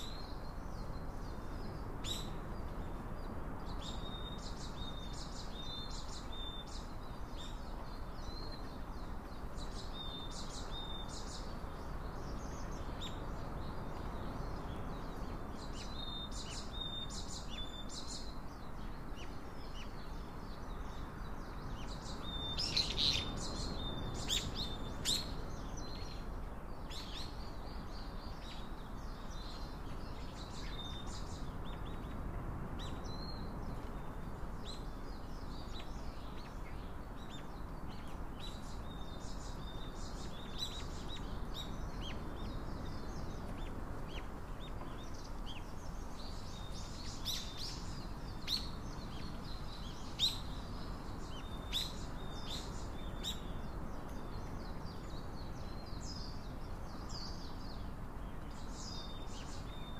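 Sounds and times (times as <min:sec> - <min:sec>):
small birds chirping: 0:00.0 - 0:59.9
steady background hiss: 0:00.0 - 0:59.9.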